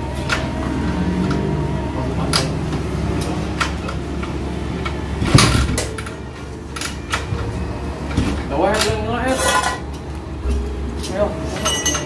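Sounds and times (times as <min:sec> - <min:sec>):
scooter engine running: 0:00.0 - 0:08.1
metallic knocks and clinks: 0:08.8 - 0:12.0.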